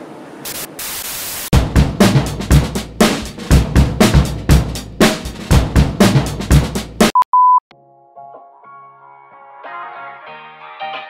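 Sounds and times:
drum kit music: 1.5 - 7.2.

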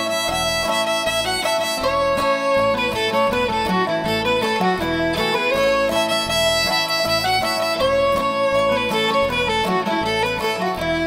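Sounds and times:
fiddle playing melody: 0.0 - 11.0
guitar: 0.0 - 11.0.

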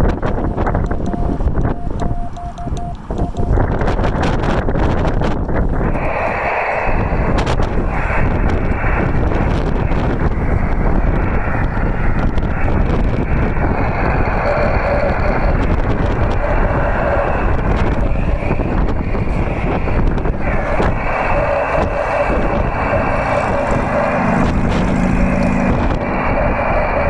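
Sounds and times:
hissy morse code tone: 0.0 - 3.7
wind buffeting microphone: 0.0 - 27.0
radio receiver hiss: 5.8 - 27.0.

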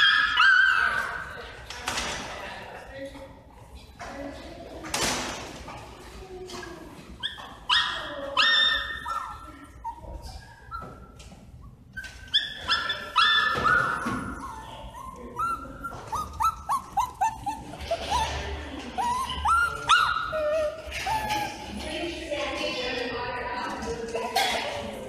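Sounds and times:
small dogs yipping and barking: 0.0 - 1.4, 7.2 - 21.8.

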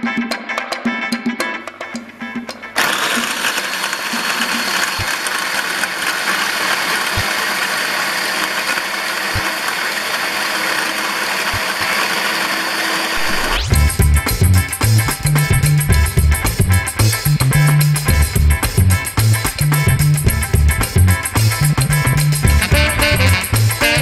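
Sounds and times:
food processor running: 2.8 - 13.6.

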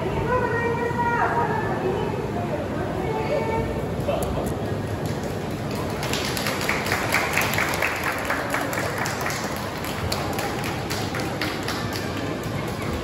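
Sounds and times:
audience clapping: 4.9 - 13.0.

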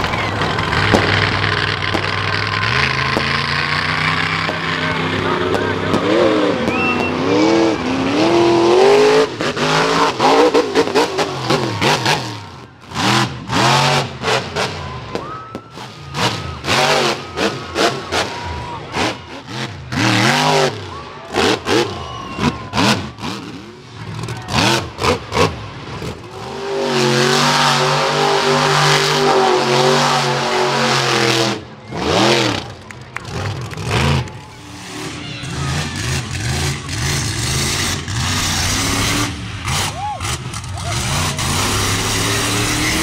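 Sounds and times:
sharp bangs: 0.0 - 7.4
monster truck engine revving: 0.0 - 43.0.

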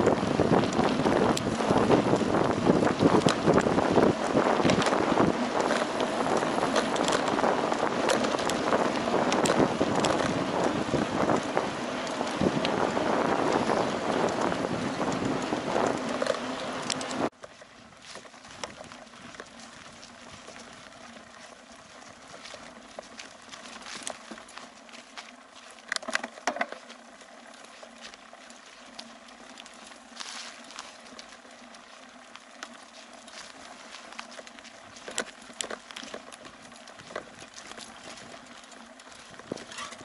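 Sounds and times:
wind buffeting microphone: 0.0 - 17.3, 34.8 - 40.0
bike clicks and rattles: 0.0 - 40.0
bike tyres on dirt trail: 0.0 - 40.0.

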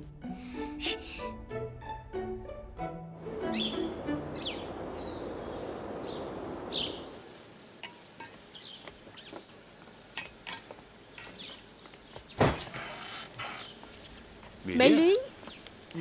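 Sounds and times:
bird chirps: 3.5 - 10.2
dishes clattering: 10.2 - 11.7
dishes and utensils clinking: 10.2 - 11.8.

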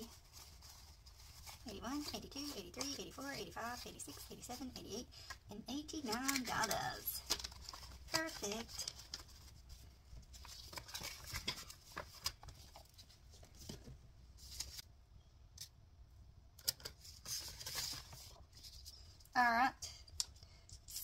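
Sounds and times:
banknotes rustling: 0.0 - 14.8.

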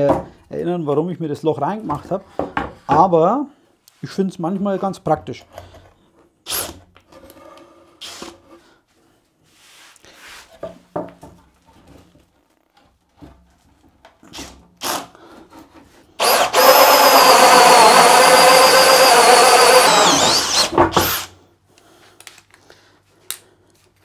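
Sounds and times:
drill with hole saw cutting board: 8.0 - 8.3, 14.3 - 15.1, 16.2 - 21.4
soft knocks and handling: 10.4 - 14.2.

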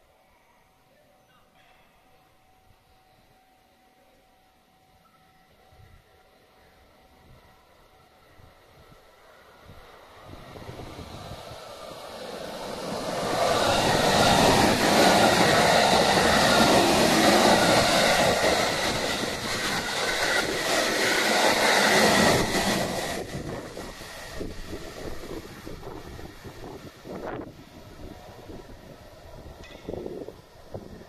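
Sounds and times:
train passing at speed: 5.5 - 31.0
wheels clacking on rail: 29.6 - 30.3.

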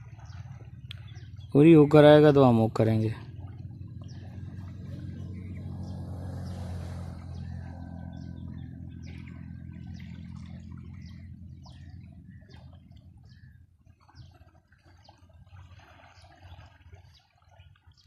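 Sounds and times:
vehicle engine humming: 0.0 - 13.5.

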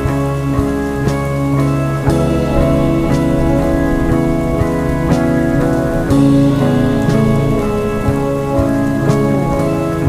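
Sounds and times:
slow music with sustained chords: 0.0 - 10.0
steady rainfall: 0.0 - 10.0.

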